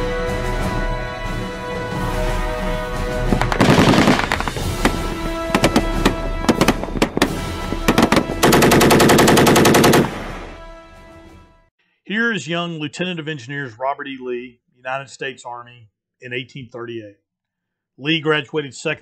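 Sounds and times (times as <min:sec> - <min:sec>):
theme music: 0:00.0 - 0:11.7
rapid machine-gun fire: 0:03.3 - 0:10.5
single gunshots: 0:03.4 - 0:10.5.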